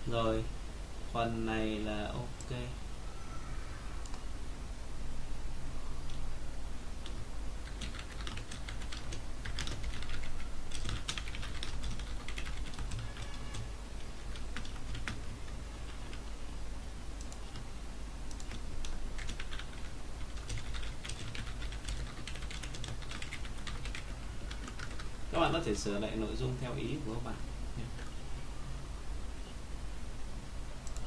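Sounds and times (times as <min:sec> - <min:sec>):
computer keyboard typing: 0:07.0 - 0:16.3, 0:17.2 - 0:17.7, 0:18.3 - 0:25.2.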